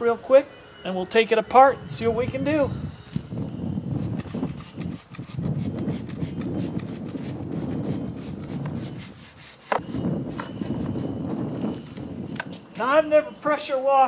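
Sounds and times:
stiff brush scrubbing: 0:03.9 - 0:12.5
spray bottle squirting: 0:04.0 - 0:11.0.

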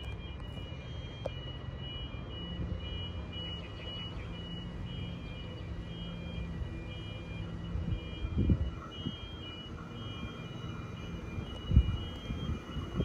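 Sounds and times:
wind buffeting microphone: 0:07.7 - 0:10.3, 0:11.2 - 0:13.0.

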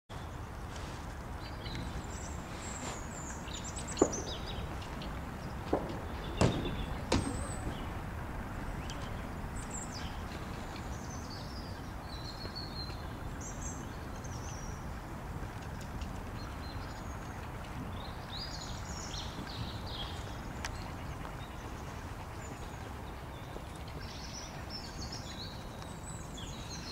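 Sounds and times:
birds chirping: 0:00.1 - 0:26.9
low outdoor noise: 0:00.1 - 0:26.9
sharp knocks: 0:05.6 - 0:08.0.

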